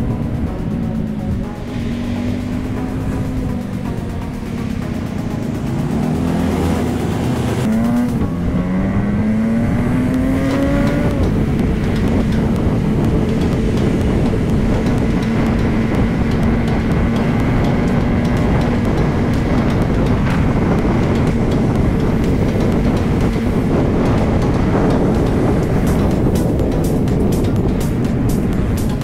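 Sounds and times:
motorcycle engine accelerating: 0.0 - 29.0
wind and road rumble: 0.0 - 29.0.

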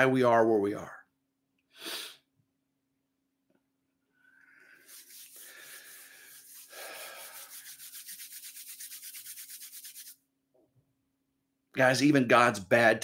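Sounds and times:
palms rubbing together: 4.5 - 10.2.

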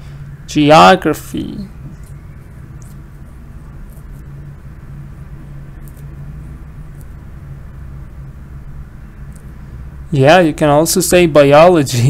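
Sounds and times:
low background hum and rumble: 0.0 - 12.0.

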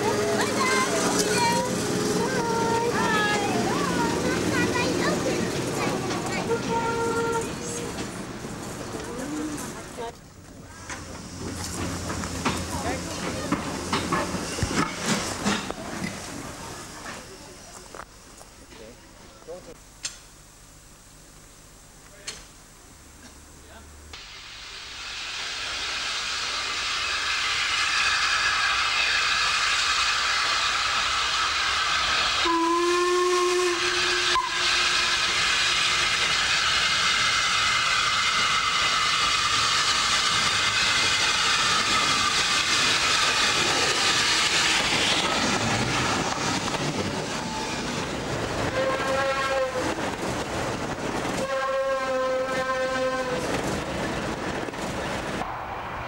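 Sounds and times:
steam locomotive hissing: 0.0 - 19.8, 24.2 - 56.0
steam whistle blasts: 6.5 - 7.6, 26.1 - 44.6, 48.7 - 49.9, 51.4 - 53.5.

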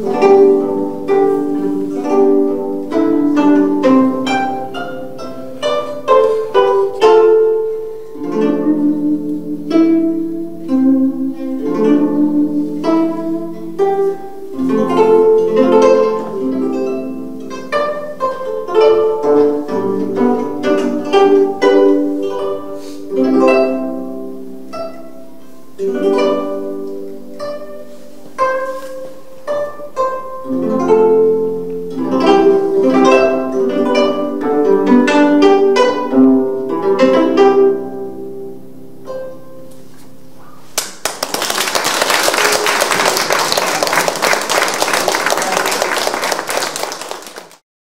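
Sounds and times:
plucked zither melody: 0.0 - 40.8.

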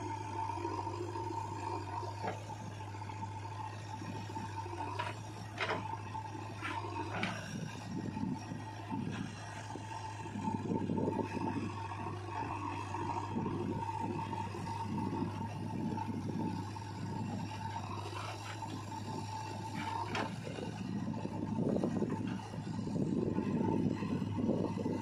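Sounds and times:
backhoe diesel engine under load: 0.0 - 25.0.

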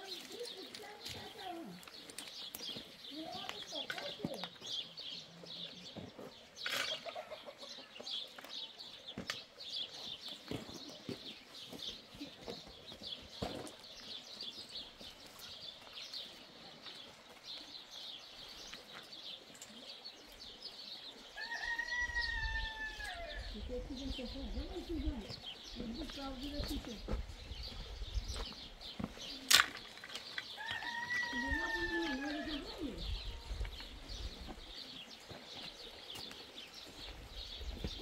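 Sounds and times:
small birds chirping: 0.0 - 38.0
rooster crowing: 21.4 - 23.4, 30.6 - 32.6.

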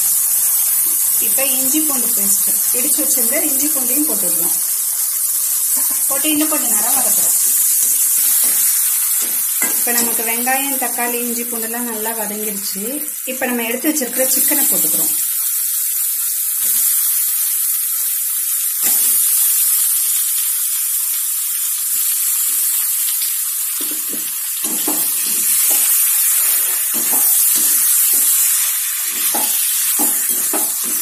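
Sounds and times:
chicken sizzling in a wok: 0.0 - 31.0.

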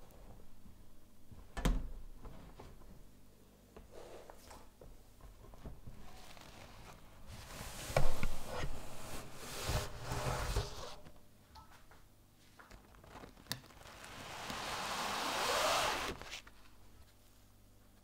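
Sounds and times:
bench scraper scraping paper: 14.1 - 16.4.

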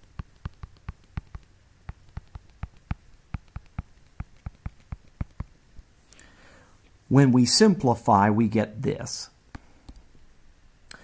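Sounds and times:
stylus clicking on tablet screen: 0.0 - 5.5.

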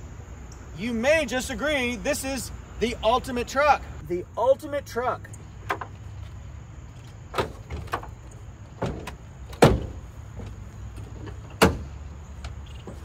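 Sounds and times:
tailgate knocks and clunks: 5.5 - 6.4, 7.0 - 13.0.

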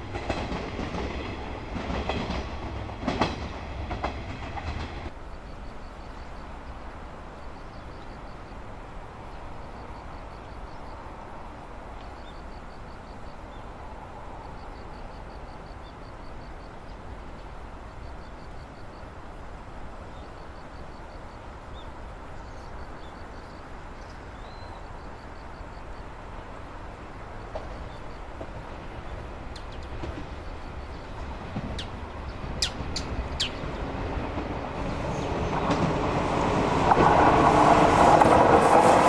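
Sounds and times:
insects chirping in rapid pulses: 0.0 - 39.0.

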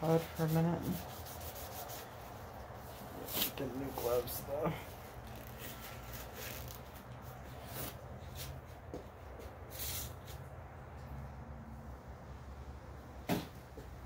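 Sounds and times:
rubber gloves rustling: 0.0 - 10.5.

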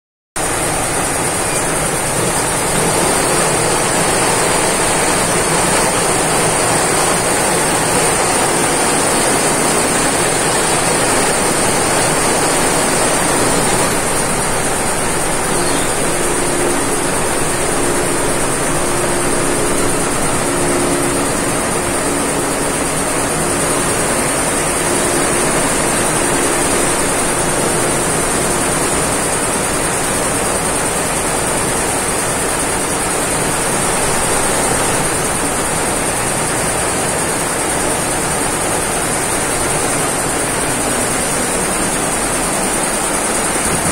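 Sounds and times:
embroidery machine running: 0.4 - 43.9
low hum: 7.8 - 29.2.

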